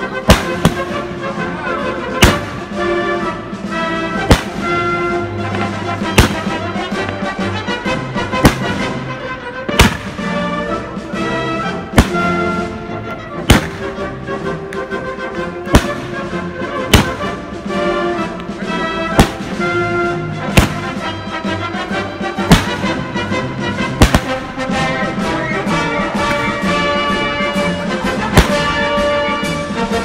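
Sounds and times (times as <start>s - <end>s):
patriotic music: 0.0s - 30.0s
firework shells bursting: 0.3s - 1.1s, 2.2s - 2.8s, 4.2s - 7.2s, 8.3s - 9.0s, 9.7s - 10.5s, 11.9s - 12.7s, 13.5s - 14.1s, 15.7s - 16.3s, 16.9s - 17.4s, 19.1s - 21.5s, 22.4s - 24.7s, 28.1s - 29.5s.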